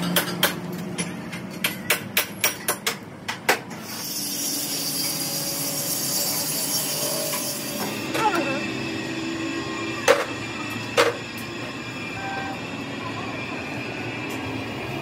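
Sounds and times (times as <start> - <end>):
hammer striking metal: 0.0 - 3.6.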